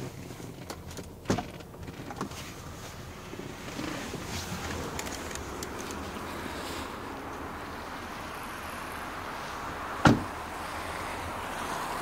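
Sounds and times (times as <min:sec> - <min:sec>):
car door slamming: 0:10.0 - 0:10.4.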